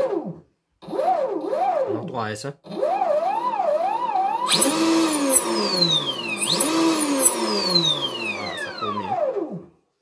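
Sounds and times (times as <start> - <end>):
electric motor whining: 2.9 - 9.7.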